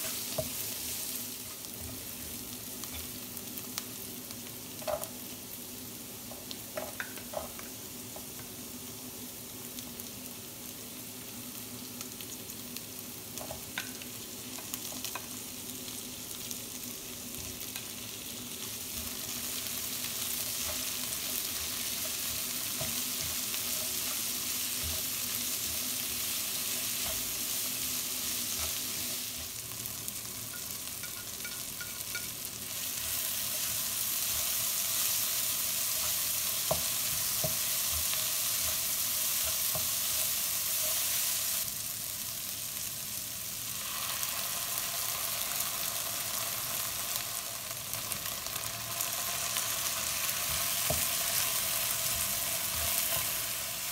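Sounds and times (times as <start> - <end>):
vegetables sizzling in hot oil: 0.0 - 53.9
spatula tapping on a pan: 30.5 - 32.3.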